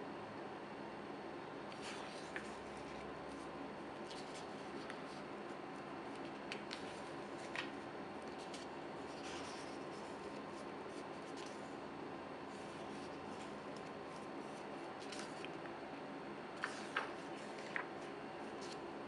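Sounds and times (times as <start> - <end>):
faint hum: 0.0 - 19.0
book pages turning: 1.7 - 5.3, 6.1 - 11.7, 12.5 - 15.7, 16.6 - 18.9.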